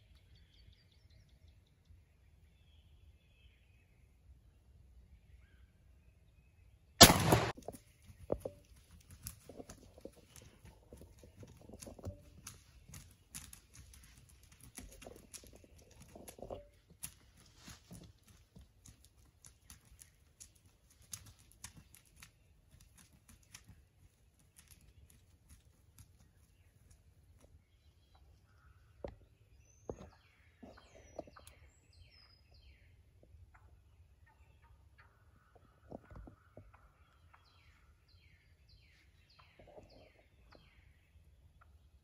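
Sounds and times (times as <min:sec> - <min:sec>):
gunshot: 0:07.0 - 0:07.8
birds scrambling in dry leaves: 0:07.8 - 0:27.4.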